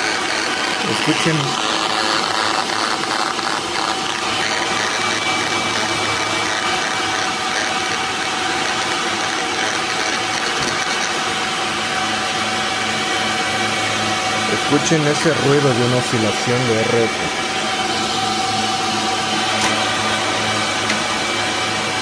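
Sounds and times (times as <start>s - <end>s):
radio noise with hum: 0.0s - 11.2s, 14.5s - 17.4s.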